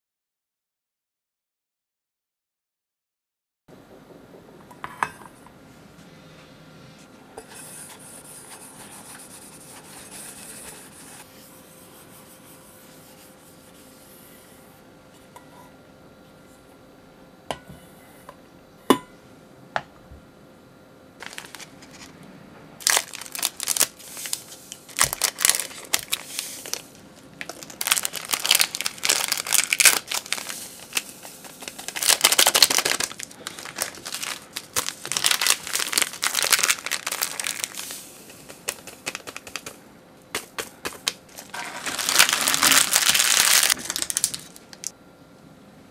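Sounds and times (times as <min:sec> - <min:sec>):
plastic sachets tearing and crinkling: 0:21.2 - 0:22.1, 0:22.8 - 0:39.8, 0:40.4 - 0:44.9.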